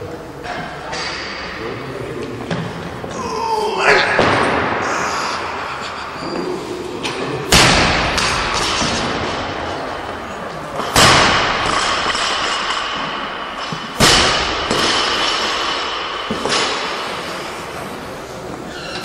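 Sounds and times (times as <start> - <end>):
barbells crashing onto platforms: 7.1 - 17.6.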